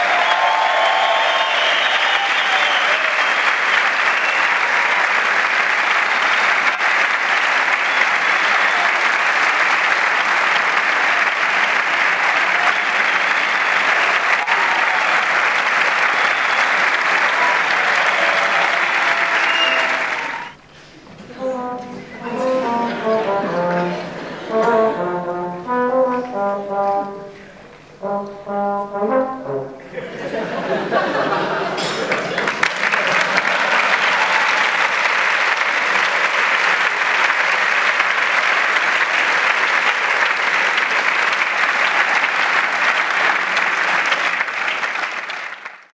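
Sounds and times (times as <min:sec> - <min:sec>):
audience applauding: 0:00.0 - 0:20.7, 0:30.0 - 0:45.9
trumpet playing notes: 0:21.3 - 0:29.9.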